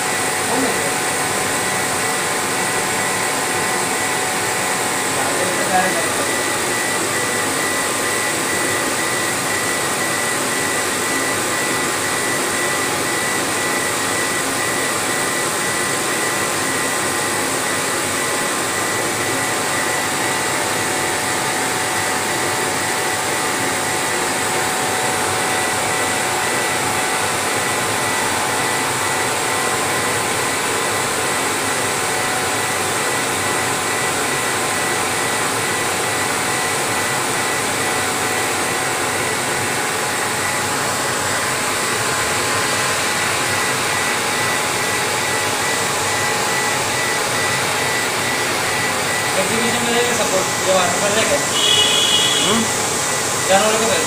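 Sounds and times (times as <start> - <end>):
fans rushing air: 37.7 - 54.0
faint high whine: 49.2 - 54.0.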